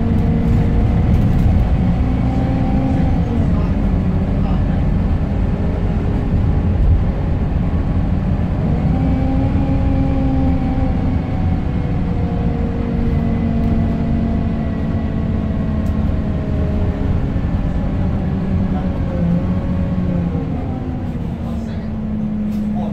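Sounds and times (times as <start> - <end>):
bus engine rumble with whine: 0.0 - 22.9.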